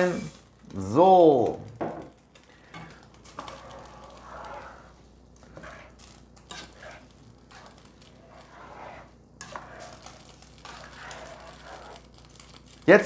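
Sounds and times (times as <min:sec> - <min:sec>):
spatula stirring in a pot: 0:02.2 - 0:13.0.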